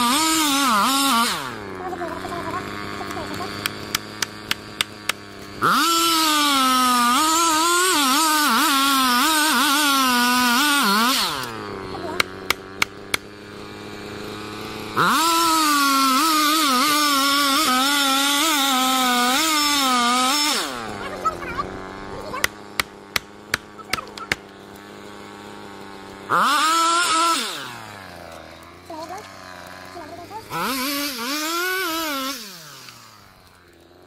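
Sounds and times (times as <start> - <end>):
chainsaw cutting wood: 0.0 - 34.0
chainsaw idling: 0.0 - 34.0
sharp clicks: 3.0 - 5.5, 11.4 - 13.3, 22.3 - 24.8.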